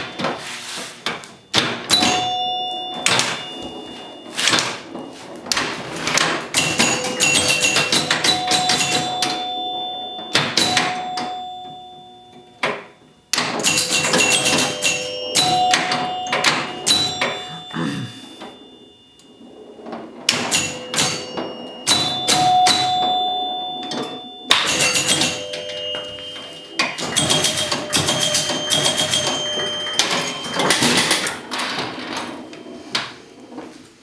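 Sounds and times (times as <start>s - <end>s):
pinball scoring chimes: 0.0s - 34.0s
mechanical clicking and clacking: 5.5s - 9.4s, 13.3s - 17.2s, 23.9s - 26.0s, 26.8s - 32.3s.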